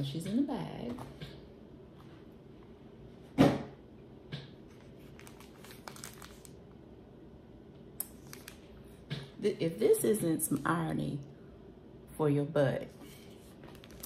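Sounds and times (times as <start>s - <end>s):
plastic mailer bag rustling: 4.8s - 6.6s, 13.6s - 14.0s.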